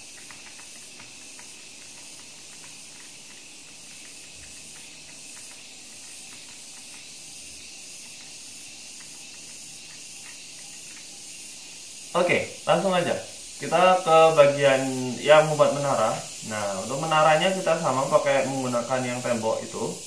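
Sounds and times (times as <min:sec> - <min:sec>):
faint clicks: 0:00.0 - 0:07.2, 0:08.0 - 0:11.2
microphone background hiss: 0:00.0 - 0:20.0.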